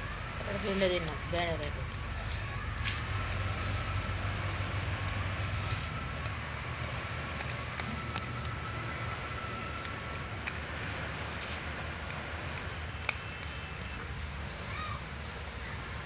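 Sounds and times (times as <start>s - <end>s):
steady low rumble: 0.0s - 14.6s
vegetable peeler scraping: 0.4s - 9.2s
sharp clicks: 1.8s - 10.9s, 11.6s - 14.0s.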